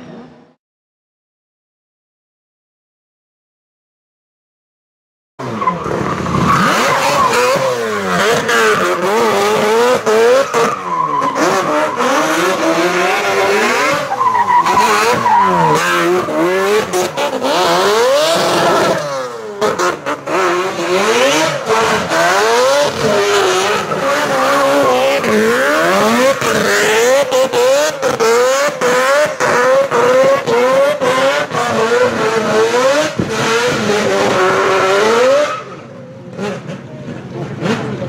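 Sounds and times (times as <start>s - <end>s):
car engines revving hard: 5.4s - 38.0s
tyre squeal: 10.2s - 19.3s.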